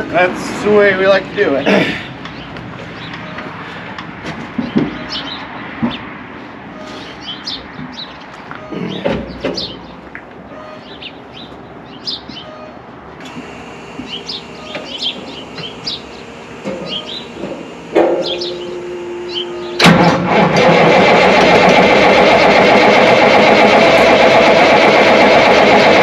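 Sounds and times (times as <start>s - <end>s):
birds chirping: 0.6s - 19.8s.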